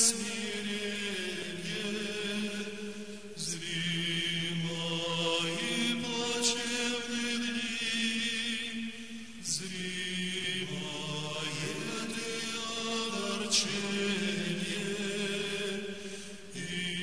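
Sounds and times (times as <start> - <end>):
men chanting in held notes: 0.0 - 17.0.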